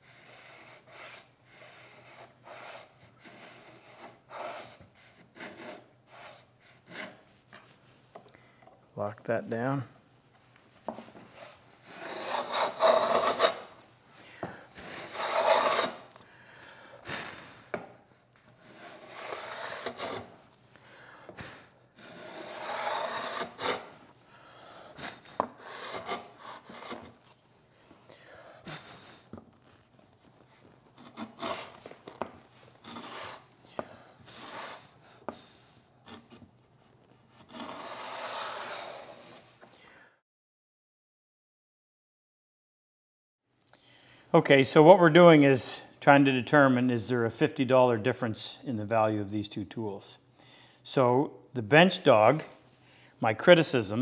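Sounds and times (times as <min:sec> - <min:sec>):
router plane rasping wood: 0:00.2 - 0:07.2, 0:11.4 - 0:13.7, 0:14.8 - 0:16.1, 0:18.6 - 0:20.3, 0:22.0 - 0:23.9, 0:25.0 - 0:27.2, 0:31.0 - 0:31.8, 0:32.8 - 0:33.5, 0:37.4 - 0:39.5.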